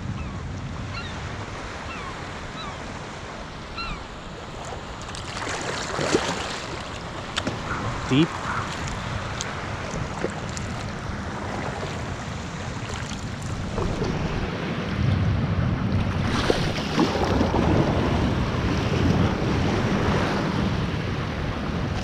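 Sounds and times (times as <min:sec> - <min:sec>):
waves breaking on rocks: 0:03.0 - 0:15.0, 0:15.8 - 0:20.8
wind buffeting microphone: 0:04.8 - 0:22.0.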